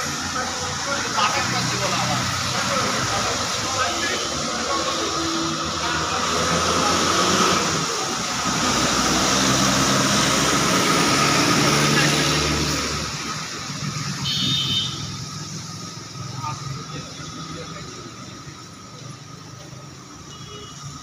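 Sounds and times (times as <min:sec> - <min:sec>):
tyres swishing through water: 0:00.0 - 0:14.2
rain hissing on wet road: 0:00.0 - 0:20.1.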